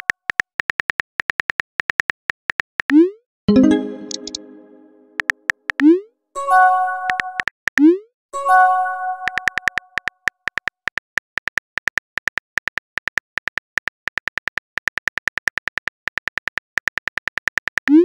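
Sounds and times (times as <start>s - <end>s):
message chime: 3.5s - 5.2s, 6.4s - 7.4s
virtual keyboard key clicks: 3.6s - 4.6s.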